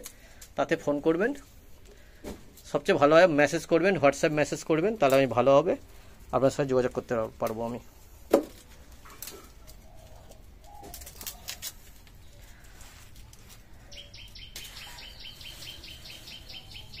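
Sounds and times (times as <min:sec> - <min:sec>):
bird chirping rapidly: 0:13.9 - 0:17.0.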